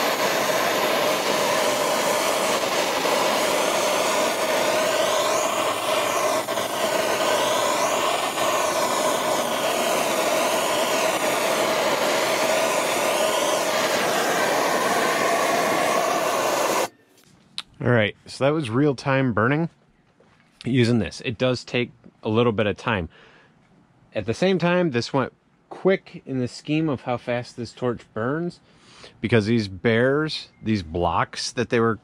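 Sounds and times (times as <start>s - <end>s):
gas torch flame hissing: 0.0s - 16.9s.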